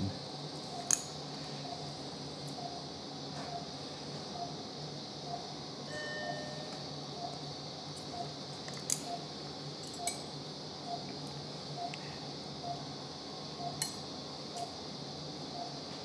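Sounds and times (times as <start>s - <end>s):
monitor pulse beep: 1.6s - 1.9s, 2.6s - 4.6s, 5.2s - 7.4s, 8.1s - 8.4s, 9.0s - 9.3s, 10.8s - 11.1s, 11.7s - 12.0s, 12.6s - 12.9s, 13.5s - 13.8s, 15.5s - 15.8s.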